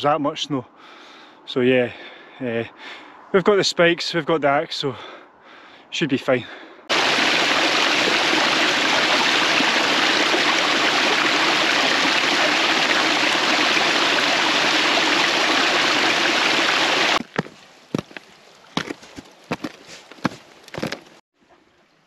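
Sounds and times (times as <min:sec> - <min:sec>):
stream rushing over boulders: 0:06.9 - 0:21.2.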